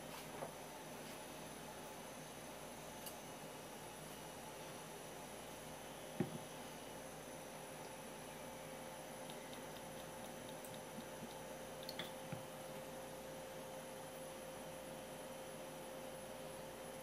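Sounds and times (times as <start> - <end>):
electrical hum: 0.0 - 17.0.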